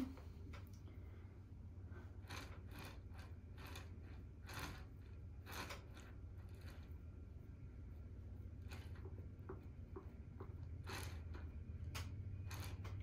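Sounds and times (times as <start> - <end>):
steady low hum: 0.0 - 13.0
fingers rubbing clay: 2.1 - 13.0.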